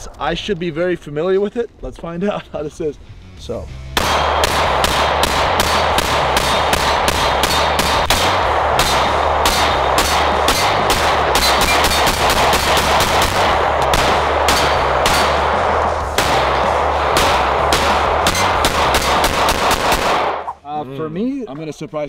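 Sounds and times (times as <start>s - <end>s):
pistol shots: 3.9s - 20.6s.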